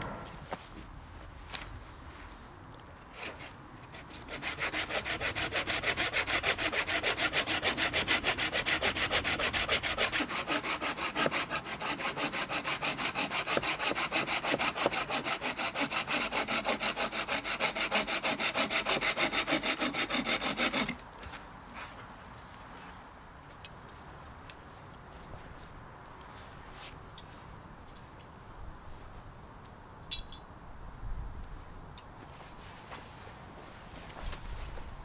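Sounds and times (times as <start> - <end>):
hand saw cutting wood: 3.1 - 21.0.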